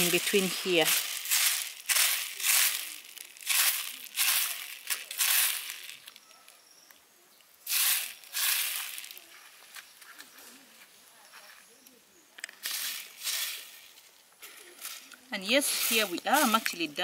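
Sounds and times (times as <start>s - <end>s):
dried peas rustling in basket: 0.0s - 6.3s, 7.6s - 11.8s, 12.4s - 17.0s.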